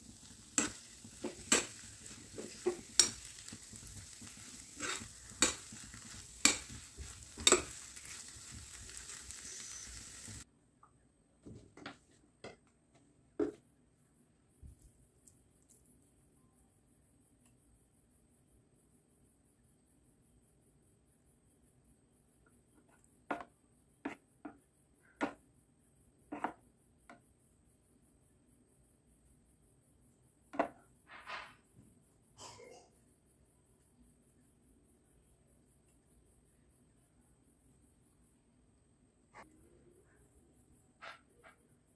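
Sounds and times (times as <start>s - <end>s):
spoon stirring thick filling: 0.0s - 10.4s
steady sizzle: 0.0s - 10.5s.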